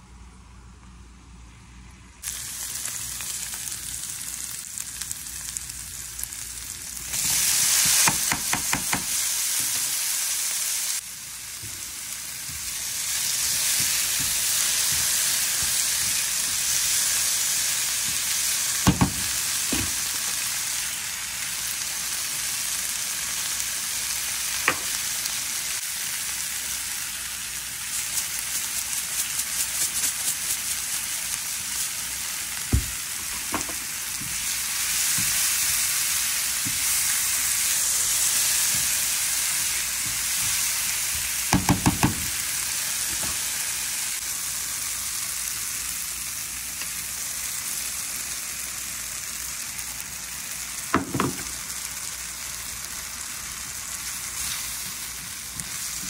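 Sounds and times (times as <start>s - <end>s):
vegetables sizzling in a frying pan: 2.2s - 56.0s
spatula knocking on pan: 7.9s - 9.2s, 41.5s - 42.3s
seasoning shaker rattle: 27.8s - 32.4s.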